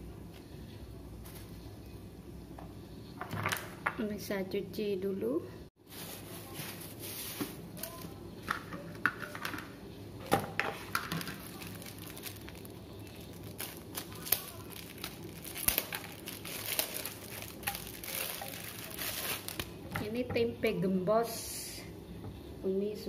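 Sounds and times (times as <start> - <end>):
plastic wrapping crinkling: 5.8 - 8.2, 10.7 - 19.9.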